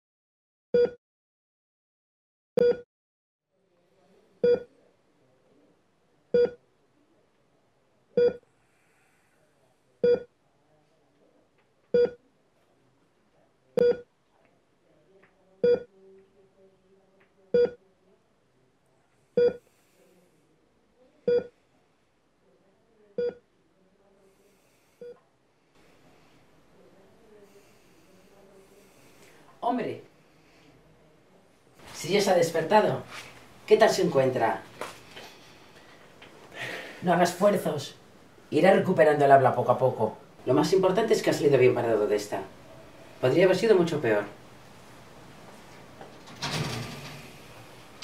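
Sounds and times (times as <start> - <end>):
patient monitor beeping: 8.2 - 8.4, 10.0 - 10.3, 13.8 - 14.1, 19.4 - 19.6.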